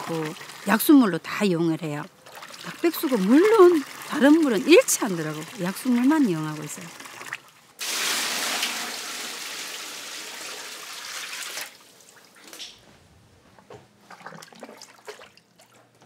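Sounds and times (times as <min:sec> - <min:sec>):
water gushing and pouring: 0:00.0 - 0:00.8, 0:02.2 - 0:11.9
water trickling and splashing: 0:00.0 - 0:01.4, 0:02.1 - 0:07.6, 0:14.1 - 0:16.0.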